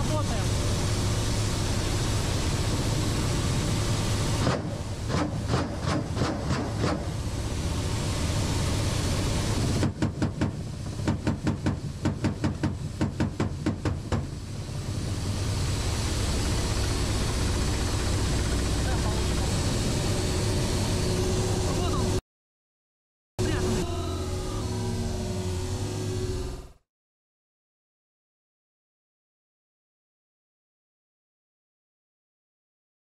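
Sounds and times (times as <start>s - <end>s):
helicopter engine and rotor noise: 0.0s - 22.2s, 23.4s - 26.8s.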